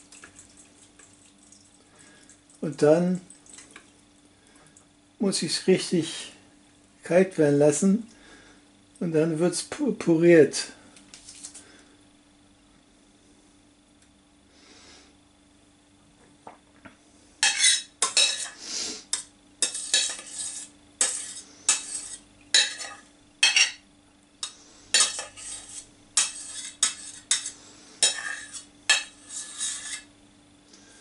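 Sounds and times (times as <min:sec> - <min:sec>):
spoon scraping in colander: 0:17.4 - 0:23.8, 0:24.4 - 0:30.1.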